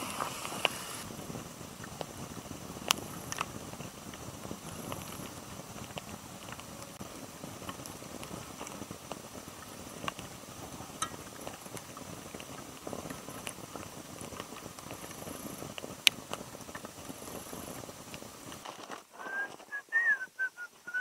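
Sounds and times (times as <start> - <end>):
wood fire crackling and popping: 0.0 - 21.0.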